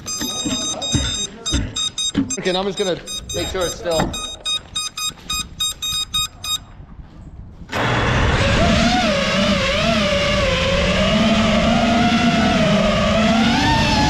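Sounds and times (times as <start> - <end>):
short electronic beep: 0.0 - 6.7
drone motors whining: 7.8 - 14.0.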